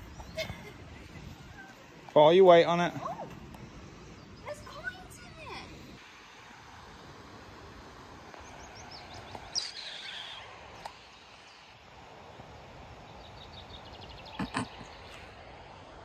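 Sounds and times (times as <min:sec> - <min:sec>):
songbirds singing: 0:00.0 - 0:05.5, 0:08.2 - 0:15.4.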